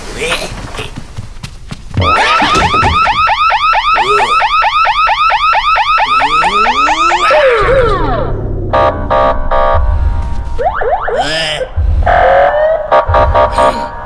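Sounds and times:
security gate alarm warbling: 2.0s - 10.0s.

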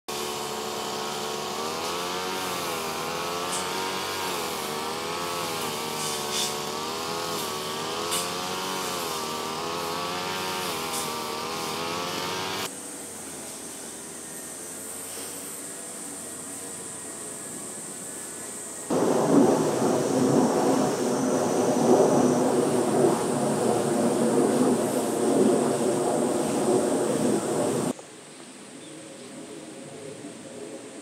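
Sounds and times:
small engine running: 0.1s - 20.4s
steady hiss: 0.1s - 31.0s.

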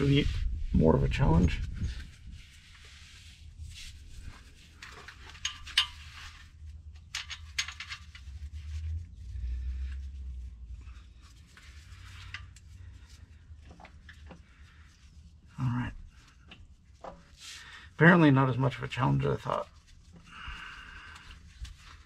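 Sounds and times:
metallic clinks and scrapes of tools: 4.7s - 8.8s, 11.2s - 14.4s.

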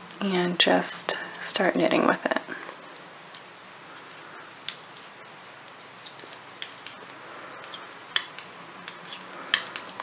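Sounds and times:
faint steady hiss: 0.0s - 10.0s
knitting needles clicking: 2.9s - 10.0s.

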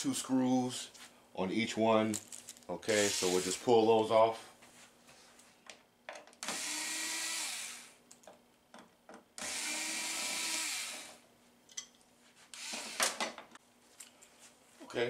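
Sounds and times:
electric screwdriver motor: 3.0s - 3.6s, 6.4s - 8.0s, 9.4s - 11.2s, 12.6s - 13.2s.

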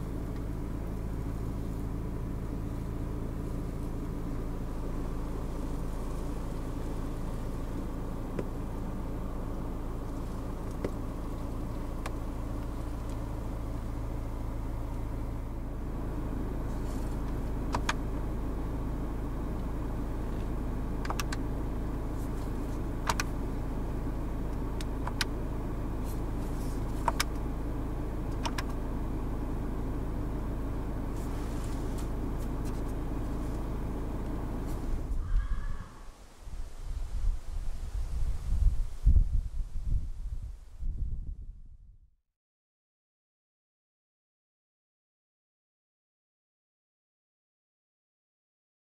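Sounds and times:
diesel engine humming in cabin: 0.0s - 42.2s
sharp clicks: 21.0s - 21.4s.

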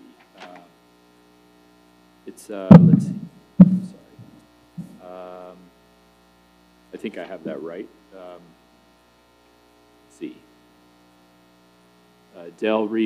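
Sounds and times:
electrical mains hum: 0.0s - 13.0s
microphone knocks: 2.7s - 5.0s
hummed tone: 2.7s - 5.2s.

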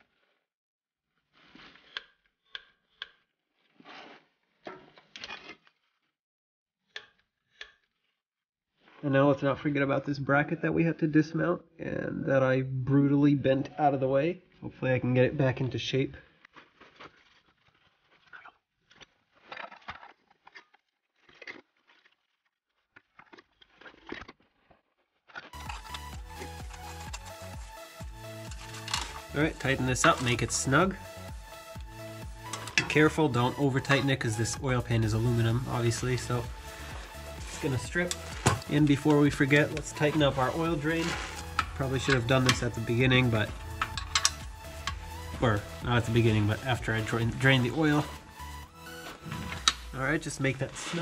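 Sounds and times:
background music with steady beat: 25.6s - 51.0s
metal bracket scraping and clanking: 28.4s - 30.8s, 32.4s - 48.2s, 49.0s - 51.0s.

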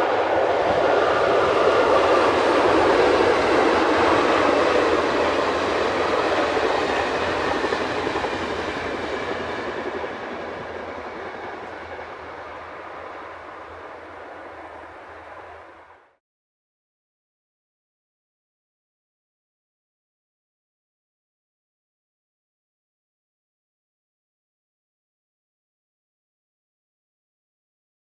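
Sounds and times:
train wheels rumbling on rails: 0.0s - 15.9s.

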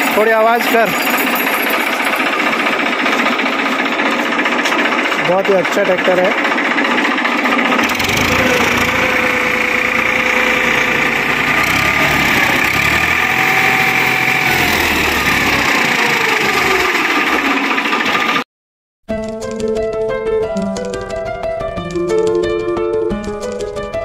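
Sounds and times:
diesel tractor engine running: 0.0s - 18.4s.

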